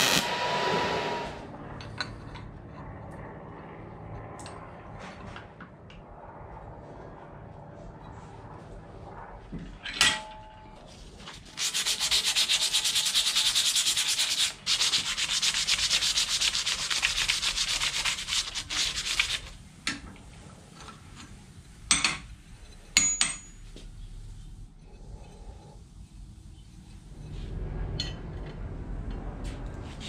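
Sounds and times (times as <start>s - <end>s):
abrasive rubbing on metal: 11.5s - 19.1s.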